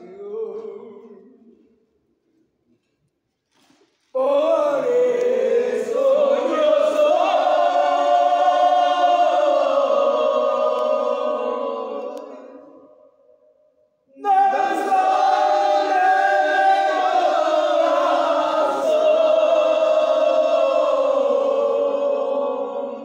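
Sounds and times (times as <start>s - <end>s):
men chanting in unison: 4.2s - 12.8s, 14.2s - 23.0s.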